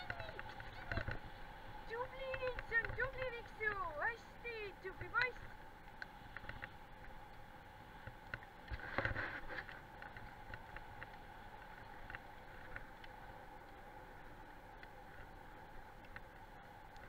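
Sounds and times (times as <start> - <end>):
wheels rolling on gravel: 0.0 - 5.7
small clicks: 14.7 - 17.0.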